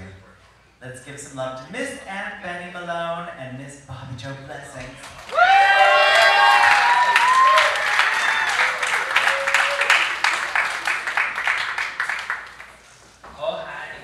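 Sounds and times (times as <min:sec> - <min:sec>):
audience applauding and cheering: 0:05.0 - 0:12.9
whoops: 0:05.2 - 0:10.3.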